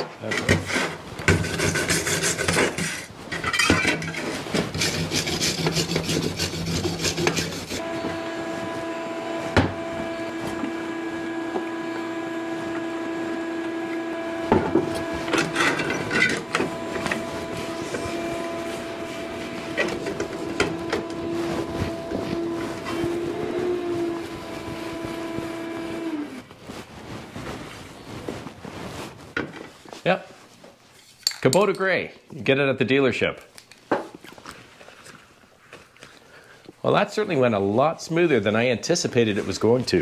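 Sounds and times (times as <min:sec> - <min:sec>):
rag rubbing: 0:00.4 - 0:07.8, 0:14.5 - 0:25.6
wire brush scrubbing steel: 0:00.6 - 0:07.8, 0:14.3 - 0:25.9
steady hum: 0:03.9 - 0:28.4.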